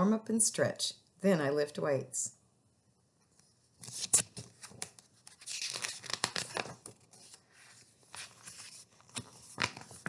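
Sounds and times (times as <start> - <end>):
book pages rustling: 3.3 - 10.0.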